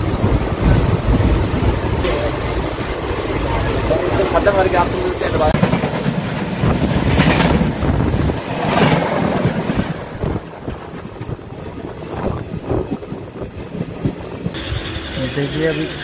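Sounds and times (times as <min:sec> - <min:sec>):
wind rushing in window: 0:00.0 - 0:04.0, 0:06.4 - 0:14.6
train wheels rumbling on track: 0:00.0 - 0:16.0.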